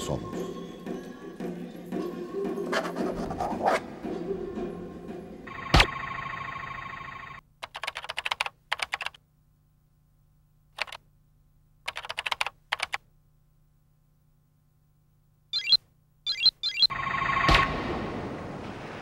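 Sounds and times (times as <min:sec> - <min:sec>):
keyboard typing: 0:07.6 - 0:09.2, 0:10.8 - 0:11.0, 0:11.9 - 0:13.0.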